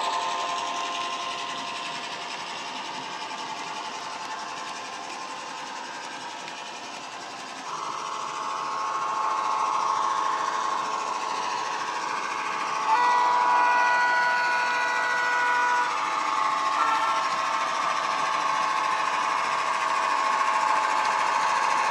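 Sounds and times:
model diesel engine through small speaker: 0:00.0 - 0:21.9
chord horn: 0:12.8 - 0:16.0, 0:16.7 - 0:17.4.

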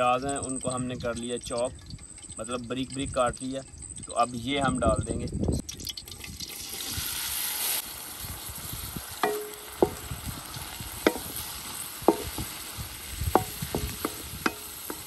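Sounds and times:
onions sizzling in hot fat: 0:06.2 - 0:15.0
metal spoon clinking on pan: 0:09.2 - 0:10.0, 0:13.4 - 0:15.0.

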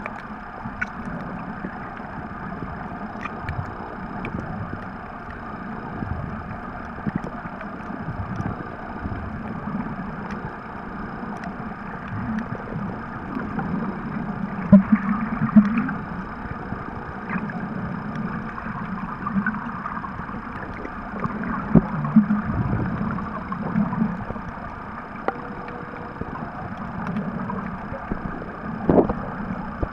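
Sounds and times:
faint clicks: 0:00.0 - 0:02.1, 0:03.1 - 0:05.4, 0:06.2 - 0:10.7, 0:11.3 - 0:13.8, 0:23.1 - 0:29.9
low underwater rumble: 0:00.0 - 0:29.9.

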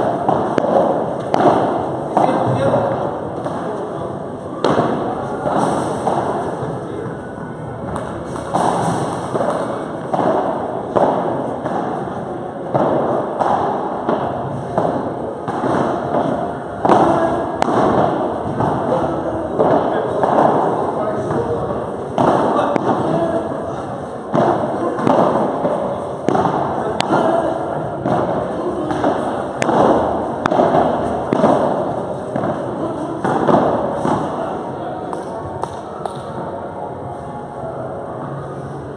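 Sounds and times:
padel ball struck by rackets: 0:00.0 - 0:03.6, 0:04.6 - 0:06.6, 0:07.9 - 0:23.2, 0:24.3 - 0:34.4
ball bouncing off court and walls: 0:28.0 - 0:34.3.

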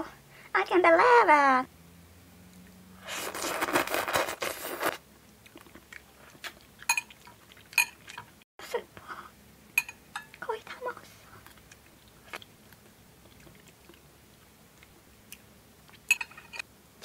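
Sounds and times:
person slurping noodles: 0:03.0 - 0:05.0
chewing with wet mouth clicks: 0:05.2 - 0:08.4, 0:11.4 - 0:16.1.

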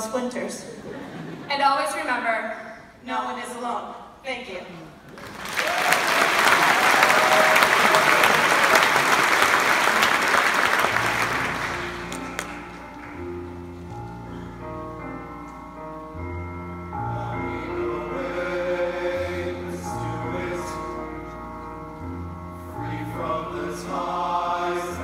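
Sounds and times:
audience applauding: 0:05.1 - 0:13.2
instrumental music with held chords: 0:11.0 - 0:25.0.

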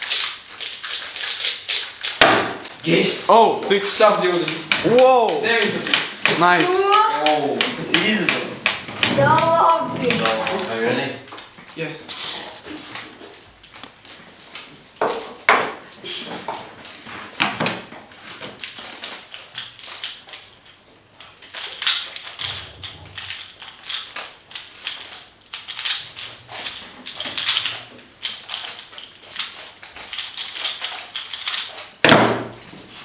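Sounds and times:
puzzle cube clacking: 0:00.0 - 0:03.0, 0:03.7 - 0:11.5, 0:18.4 - 0:33.0
hands slapping timer pads: 0:03.8 - 0:10.8.

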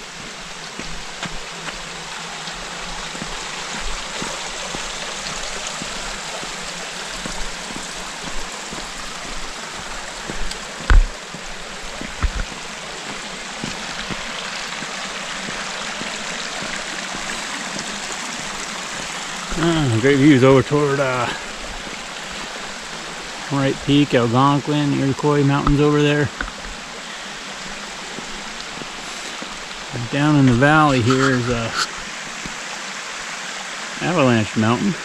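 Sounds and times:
stream rushing over rock: 0:00.0 - 0:35.0
dull thumps: 0:07.2 - 0:12.7.

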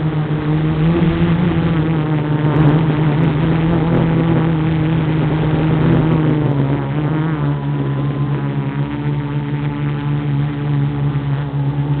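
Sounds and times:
drone motors buzzing: 0:00.0 - 0:12.0.

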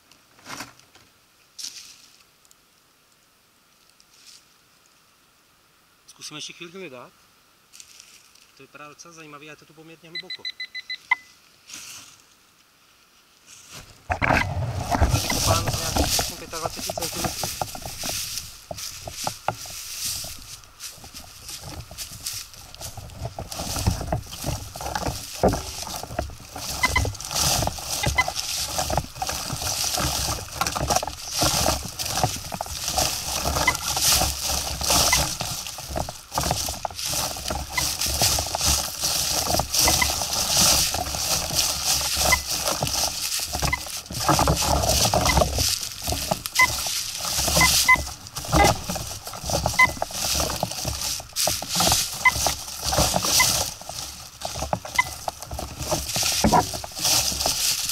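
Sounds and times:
search coil rustling leaves: 0:00.0 - 0:02.7, 0:03.7 - 0:05.2, 0:07.6 - 0:57.9
footsteps crunching dry leaves: 0:01.6 - 0:02.2, 0:07.7 - 0:08.6, 0:11.4 - 0:12.4, 0:13.3 - 0:57.9
faint short beeps: 0:10.1 - 0:11.4.

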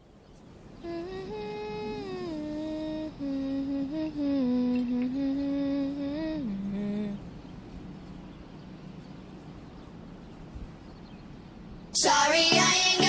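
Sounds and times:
person humming a slow tune: 0:00.8 - 0:07.3.

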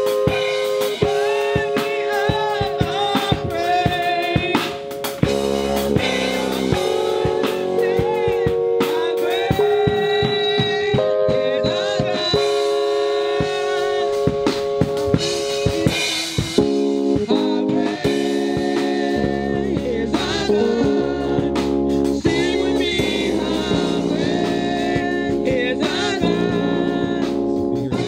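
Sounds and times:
drum kit: 0:00.0 - 0:28.0
people singing into microphones: 0:00.0 - 0:28.0
sustained chords: 0:00.0 - 0:28.0
low bass part: 0:05.2 - 0:12.7, 0:15.0 - 0:28.0.

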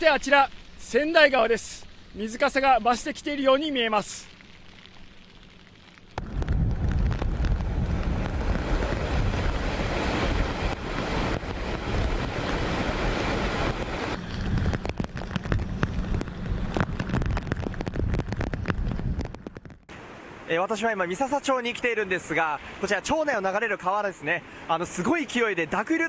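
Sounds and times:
sharp crackling hits: 0:00.0 - 0:19.9
heavy rain: 0:00.0 - 0:26.0
rushing floodwater: 0:00.0 - 0:26.0
wind buffeting microphone: 0:06.1 - 0:19.9.

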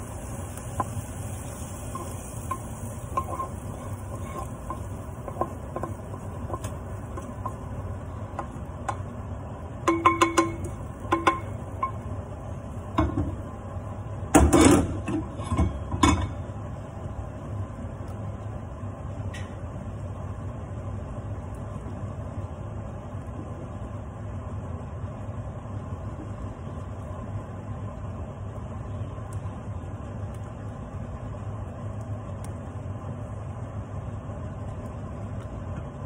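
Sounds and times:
steady low hum: 0:00.0 - 0:36.0
pan knocking: 0:02.0 - 0:07.7, 0:09.8 - 0:12.0
wooden spoon scraping metal pan: 0:03.1 - 0:07.6.

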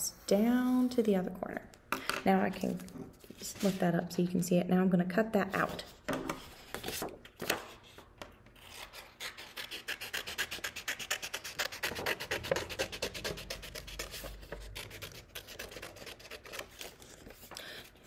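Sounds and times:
scissors cutting paper: 0:08.6 - 0:18.0.

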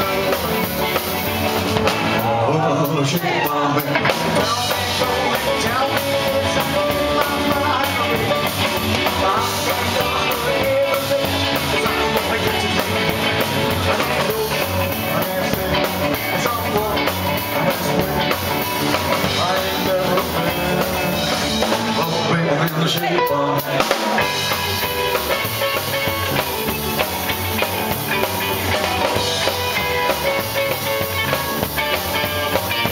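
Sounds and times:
man singing into a microphone: 0:00.0 - 0:01.4, 0:02.1 - 0:24.0, 0:28.4 - 0:29.4
drums: 0:00.0 - 0:32.9
electric guitar: 0:00.0 - 0:32.9.

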